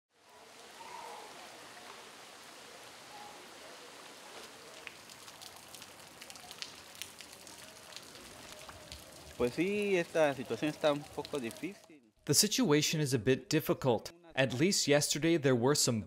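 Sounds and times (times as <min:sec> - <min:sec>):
heavy rain on a flooded street: 0:00.2 - 0:11.8
raindrop ticks: 0:04.7 - 0:11.9.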